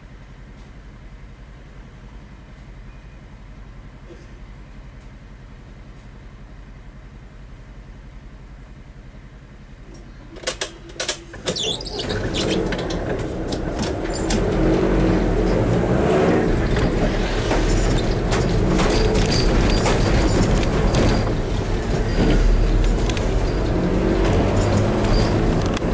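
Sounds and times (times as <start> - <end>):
car engine: 9.8 - 25.9
tyre noise on wet road: 11.6 - 25.9.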